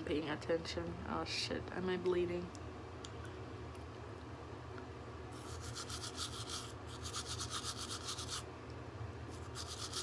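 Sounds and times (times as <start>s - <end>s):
toothbrush scrubbing teeth: 5.4s - 8.4s, 9.4s - 10.0s.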